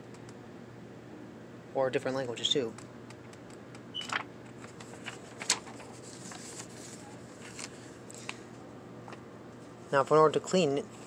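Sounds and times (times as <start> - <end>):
paper pages rustling: 4.1 - 8.5.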